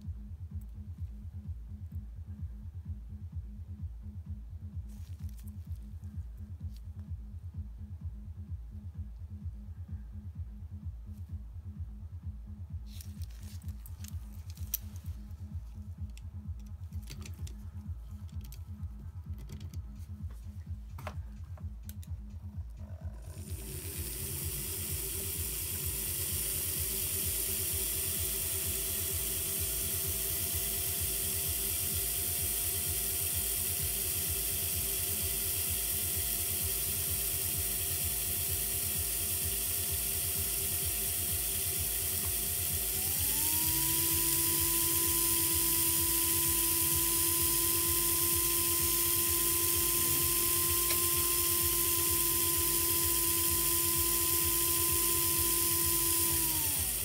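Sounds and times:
model locomotive motor whining: 22.8 - 57.0.

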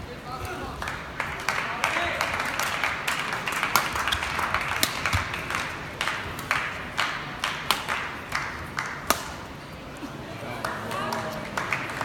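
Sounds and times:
crowd noise: 0.0 - 12.0
racket striking shuttlecock: 4.2 - 5.6, 7.4 - 8.0, 8.8 - 9.5.

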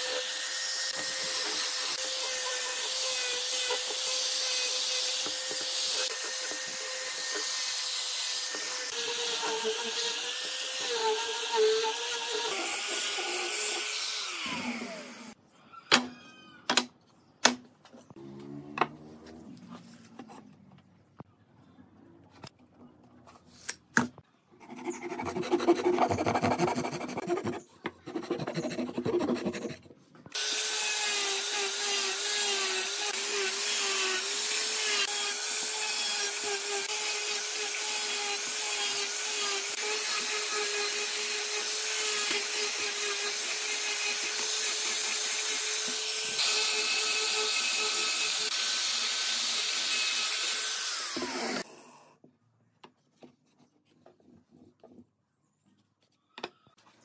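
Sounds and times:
angle grinder sanding wood: 0.0 - 15.4, 30.3 - 51.7.

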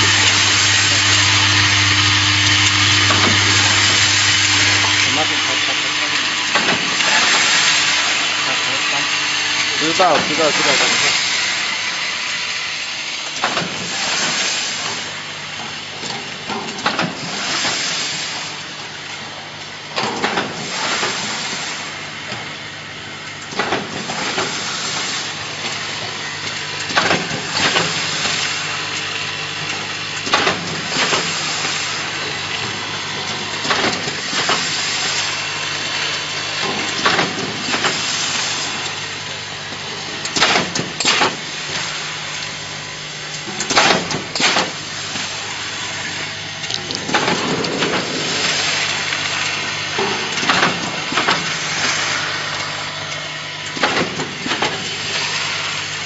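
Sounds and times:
mechanical noise bursts: 0.0 - 12.2
packing machine motor hum: 0.0 - 56.0.

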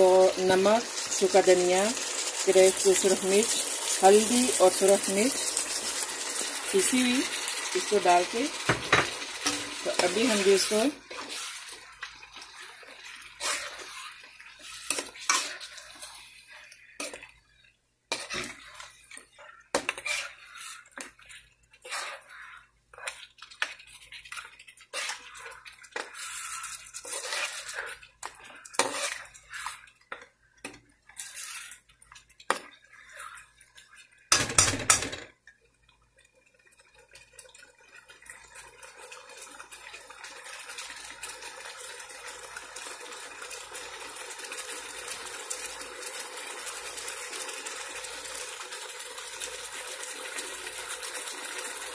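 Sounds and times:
metal spoon scraping a pan: 0.3 - 35.2.

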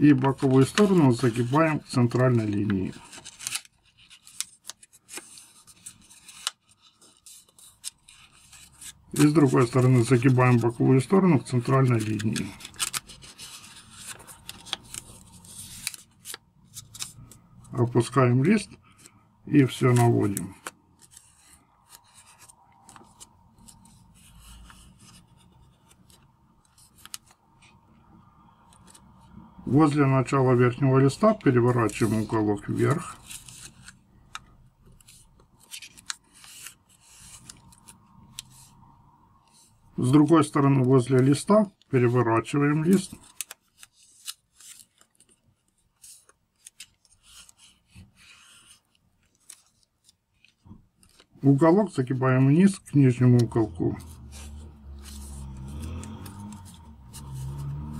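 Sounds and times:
paper rubbing and crinkling: 0.0 - 27.8, 28.7 - 29.0, 29.7 - 38.8, 39.4 - 57.9
sharp paper tick: 2.1 - 9.4, 11.8 - 17.3, 42.8 - 47.7.

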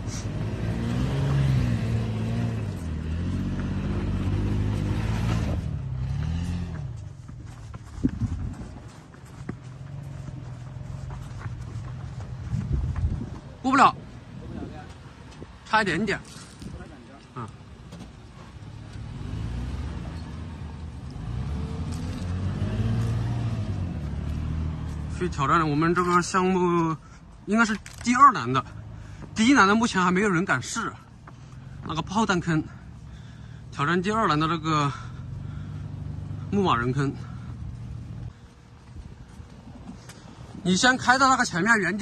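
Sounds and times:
engine revving under load: 0.0 - 7.1, 18.6 - 25.7, 34.3 - 38.4.

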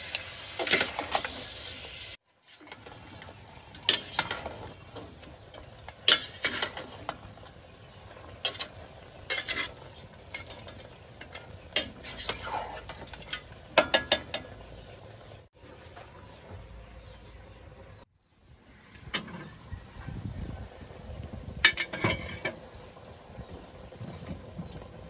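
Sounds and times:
chicken sizzling: 0.0 - 18.1, 18.7 - 25.0
metal ladle scraping a pot: 2.4 - 14.6, 21.6 - 22.6.

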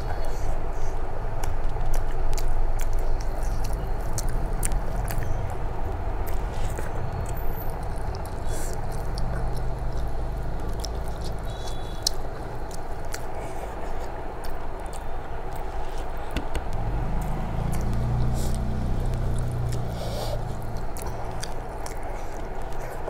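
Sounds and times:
steady low hum: 0.0 - 23.0
wet chewing clicks: 0.0 - 23.0.

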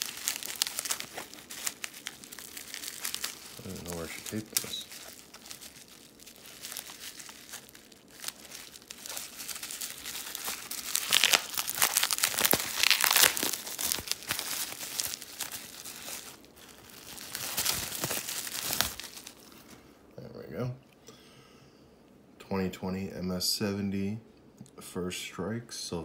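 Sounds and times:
bubble wrap crinkling: 0.0 - 19.9.

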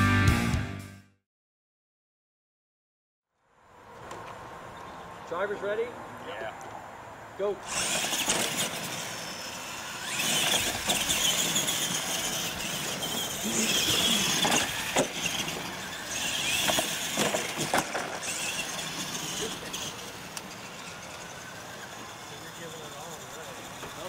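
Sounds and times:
toy truck electric motors whining: 7.4 - 24.0
toy trucks knocking on ramps: 10.1 - 19.5.

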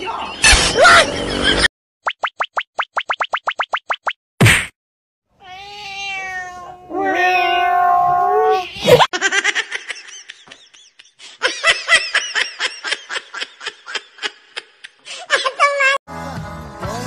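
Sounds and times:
cat yowling: 5.4 - 8.9.

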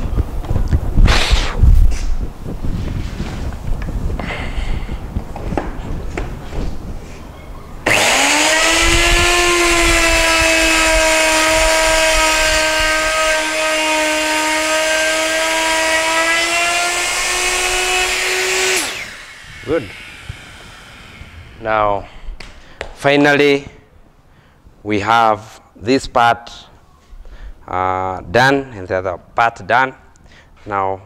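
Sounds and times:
electric router whining: 7.8 - 22.1.

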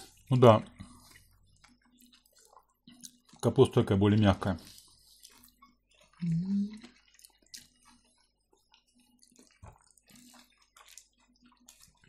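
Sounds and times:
wet chewing and mouth noises: 0.0 - 12.0
small mouth clicks: 0.9 - 3.4, 4.7 - 12.0.

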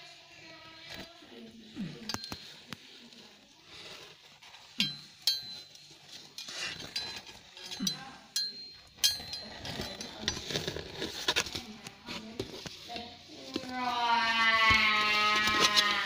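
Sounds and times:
metal medals clinking: 4.8 - 10.4.

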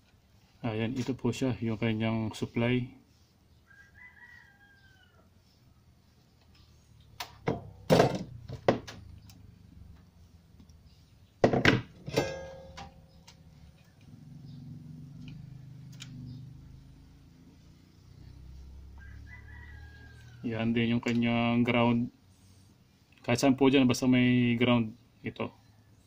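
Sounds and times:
metallic knock with ring: 12.0 - 13.1.

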